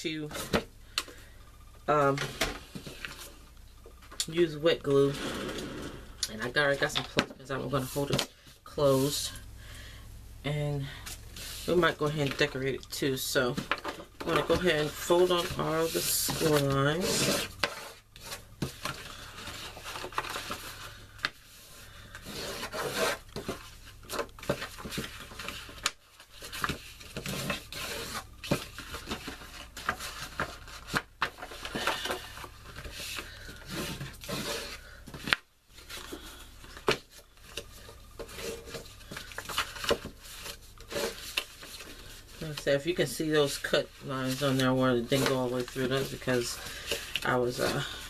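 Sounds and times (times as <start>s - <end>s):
paper rustling and creasing: 10.9s - 48.0s
paper crinkling: 13.5s - 21.4s, 22.0s - 48.0s.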